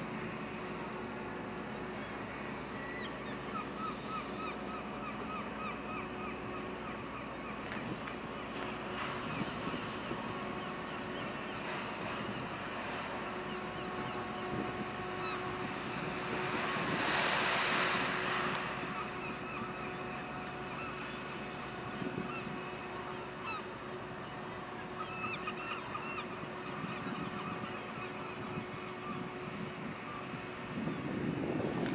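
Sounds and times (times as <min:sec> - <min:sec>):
boat diesel engine humming: 0:00.0 - 0:31.9
broad rushing swell: 0:09.0 - 0:22.0.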